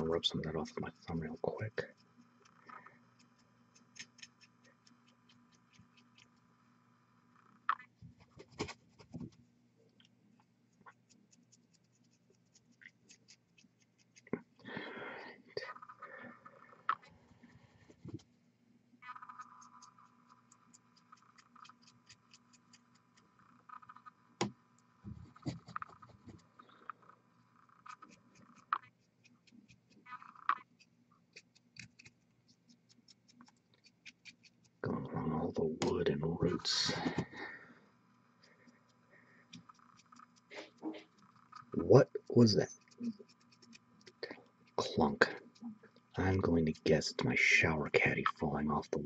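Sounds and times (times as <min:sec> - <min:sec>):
faint low hum: 0:00.0 - 0:49.0
paintbrush scratching and tapping: 0:07.7 - 0:09.4, 0:10.4 - 0:14.5, 0:16.8 - 0:18.3, 0:24.4 - 0:26.6, 0:27.8 - 0:36.1, 0:38.4 - 0:47.4.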